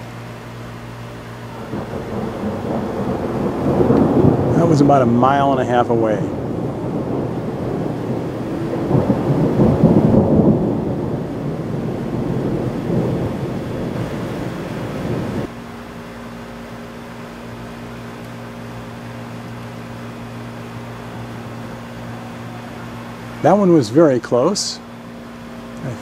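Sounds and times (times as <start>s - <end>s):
low mechanical hum: 0.0s - 26.0s
thunder rumbling: 1.5s - 15.5s.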